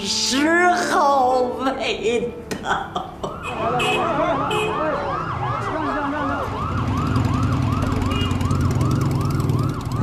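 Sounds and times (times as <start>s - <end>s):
police siren whooping: 3.2s - 10.0s.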